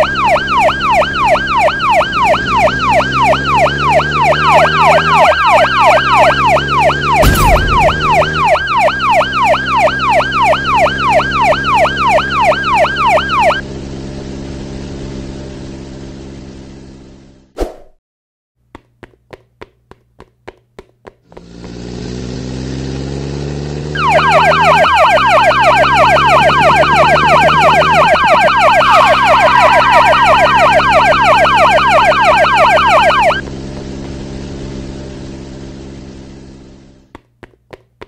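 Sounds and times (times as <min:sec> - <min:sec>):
police siren yelp: 0:00.0 - 0:13.6, 0:23.8 - 0:33.5
vehicle engine: 0:00.0 - 0:17.6, 0:21.0 - 0:38.0.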